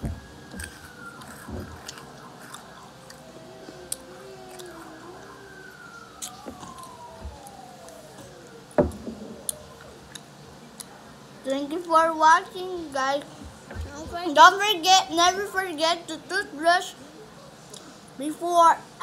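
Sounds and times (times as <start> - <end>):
candy being chewed: 0.0 - 8.6
faint siren wailing: 0.0 - 19.0.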